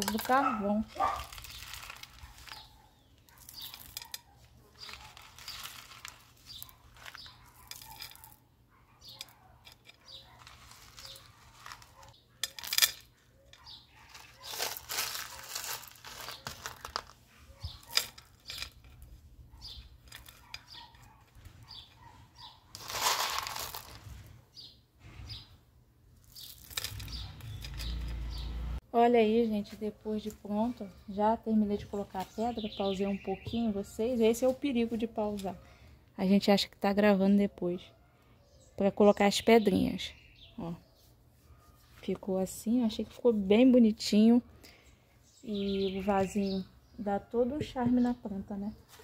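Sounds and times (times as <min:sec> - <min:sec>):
pebbles clicking and rustling: 0:00.0 - 0:08.4, 0:09.1 - 0:22.0, 0:22.7 - 0:24.3, 0:26.2 - 0:28.2.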